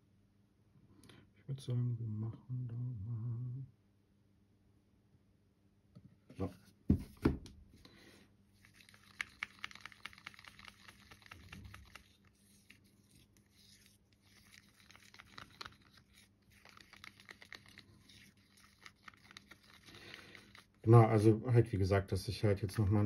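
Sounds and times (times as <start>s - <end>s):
stir stick scraping in paint: 8.6s - 20.9s.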